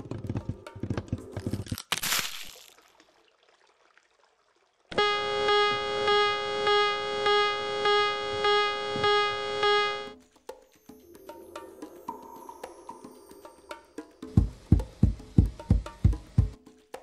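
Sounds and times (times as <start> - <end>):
pulsing synthesizer tone: 5.0 - 10.1.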